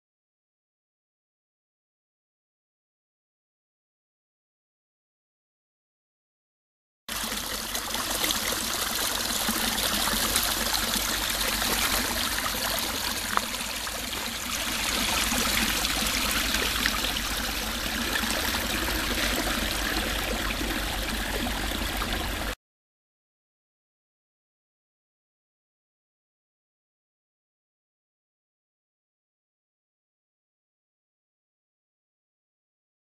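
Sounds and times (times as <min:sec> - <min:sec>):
waterfall running over rocks: 0:07.1 - 0:22.6.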